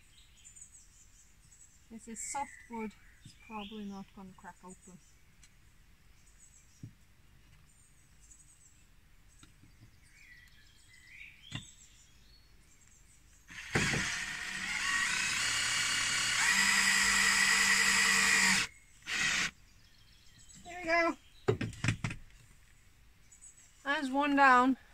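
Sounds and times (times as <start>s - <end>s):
faint birdsong: 0.0s - 24.9s
cordless drill driving screw: 13.5s - 19.5s.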